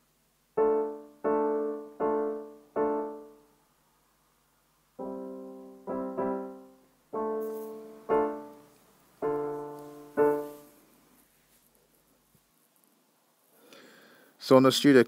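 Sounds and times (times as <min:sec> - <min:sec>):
keyboard notes struck: 0:05.0 - 0:10.7.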